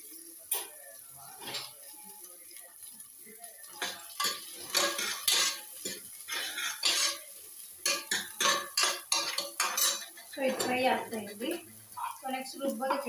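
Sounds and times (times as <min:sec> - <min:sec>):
frying in oil: 0:00.0 - 0:13.0
metal ladle scraping and clinking: 0:04.2 - 0:07.3.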